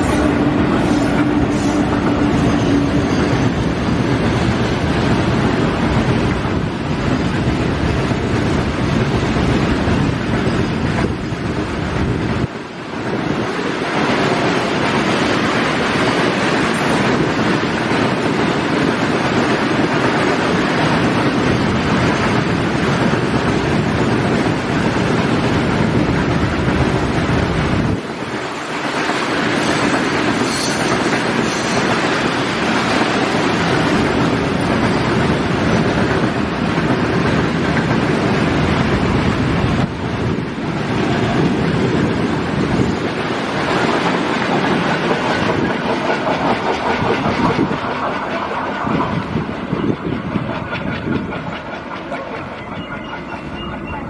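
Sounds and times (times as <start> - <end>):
freight train rumbling past: 0.0 - 54.0
wind noise on microphone: 0.0 - 54.0.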